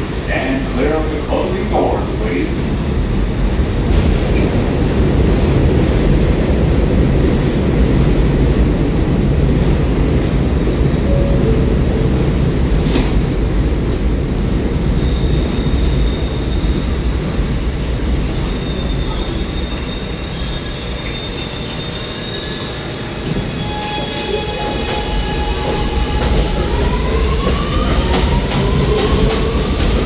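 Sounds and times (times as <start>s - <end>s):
subway train rumble: 0.0s - 30.0s
faint high tones: 11.1s - 12.8s.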